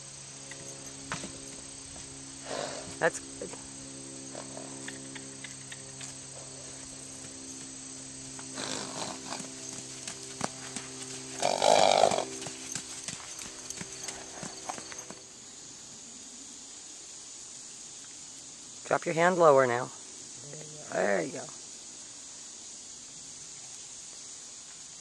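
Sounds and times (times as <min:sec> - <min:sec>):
steady hum: 0:00.0 - 0:16.4
pony hoofbeats on dirt: 0:06.0 - 0:15.3.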